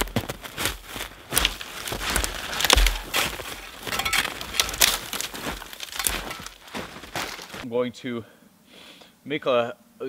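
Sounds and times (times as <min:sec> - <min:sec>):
frozen branches snapping: 0:00.0 - 0:07.6
twigs rustling: 0:00.0 - 0:07.6.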